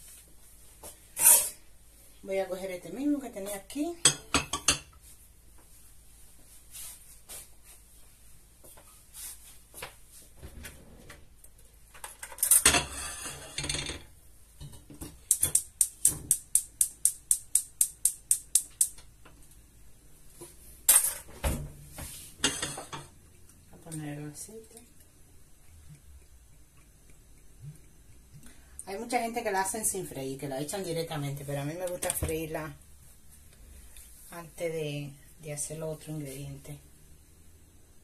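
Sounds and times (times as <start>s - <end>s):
clattering scrape: 1.2s - 1.6s, 12.2s - 14.0s, 22.0s - 23.1s
cookware clinking and knocking: 4.0s - 4.9s, 12.2s - 15.6s, 22.4s - 23.2s.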